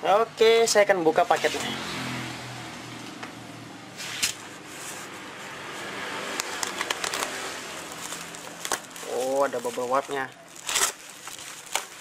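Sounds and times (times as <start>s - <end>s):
box cutter clicking on wrapping: 6.4s - 9.0s, 10.6s - 12.0s
plastic crackling: 6.4s - 12.0s
plastic packing tape rustling: 6.4s - 12.0s.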